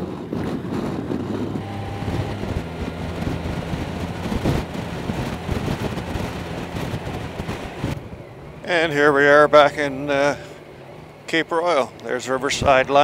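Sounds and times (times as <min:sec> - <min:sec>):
wind rushing over microphone: 0:00.0 - 0:08.8, 0:12.4 - 0:13.0
motorcycle engine running: 0:00.0 - 0:13.0
tyre noise on wet road: 0:00.6 - 0:08.8.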